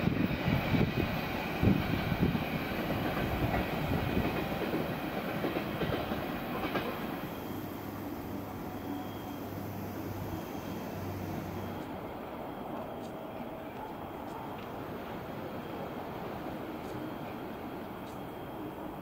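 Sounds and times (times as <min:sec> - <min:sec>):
train wheels knocking on track: 0:00.0 - 0:07.4
train low rumble: 0:00.0 - 0:19.0.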